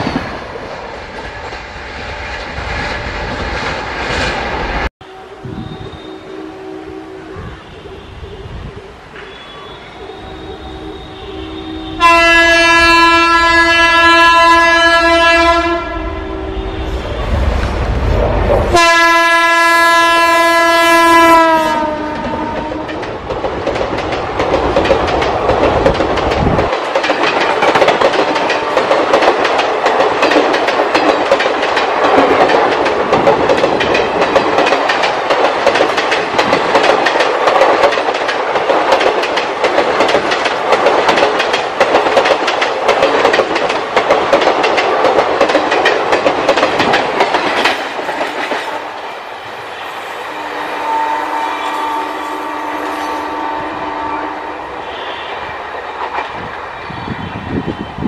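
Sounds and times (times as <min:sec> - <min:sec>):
train coaches clattering on rails: 0:00.0 - 0:06.3, 0:16.8 - 0:58.0
locomotive horn blast: 0:05.0 - 0:08.6, 0:09.2 - 0:17.5, 0:18.7 - 0:23.0, 0:50.2 - 0:55.5.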